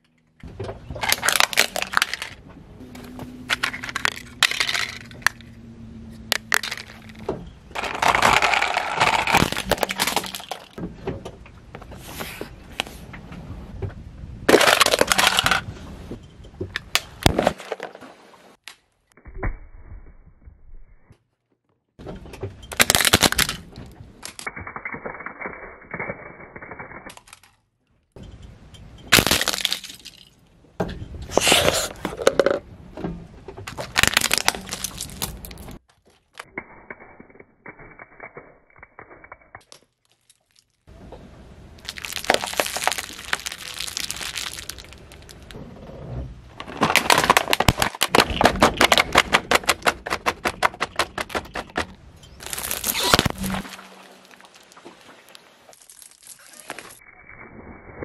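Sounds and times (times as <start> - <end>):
plastic toys cracking under tyre: 0.9 - 2.4, 3.4 - 5.4, 6.3 - 10.8, 14.5 - 15.6, 22.7 - 27.7, 29.1 - 30.2, 33.6 - 40.9, 41.8 - 45.6, 46.5 - 57.0.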